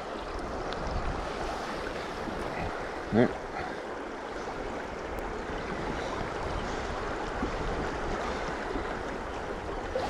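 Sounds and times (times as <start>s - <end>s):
river flowing over stones: 0.0s - 10.0s.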